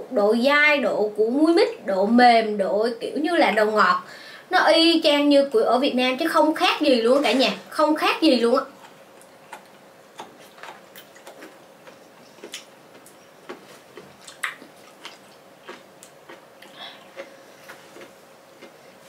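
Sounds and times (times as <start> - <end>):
people chewing with mouth smacks: 8.7 - 19.0.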